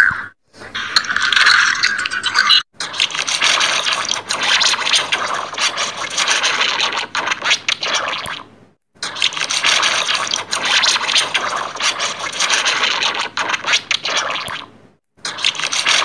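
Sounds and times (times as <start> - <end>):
harsh distorted crackling: 2.9 - 8.2, 9.0 - 14.5.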